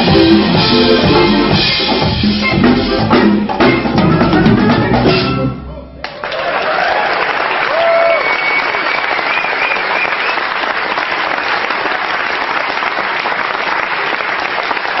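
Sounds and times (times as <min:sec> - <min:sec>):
audience applauding: 0:06.0 - 0:15.0
high whistle: 0:08.0 - 0:10.5.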